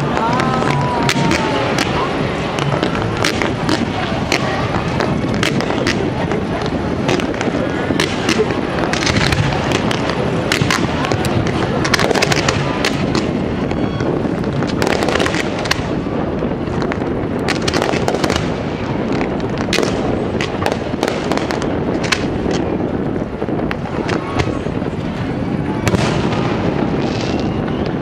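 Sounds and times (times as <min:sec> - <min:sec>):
fireworks bangs and cracks: 0:00.0 - 0:28.0
fireworks rumble: 0:00.0 - 0:28.0.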